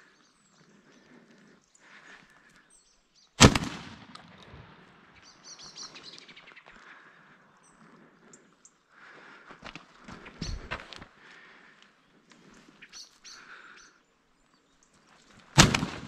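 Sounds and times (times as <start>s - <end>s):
small birds chirping: 0.0s - 3.4s, 5.2s - 15.5s
shotgun shot with echo: 3.4s - 4.4s, 15.6s - 16.0s.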